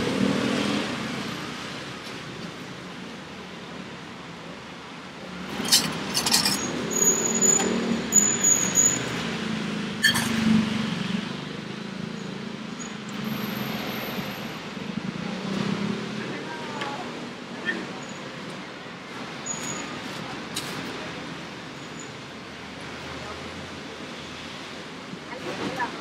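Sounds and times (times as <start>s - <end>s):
road traffic: 0.0s - 26.0s
sharp clinks and knocks: 5.6s - 6.7s.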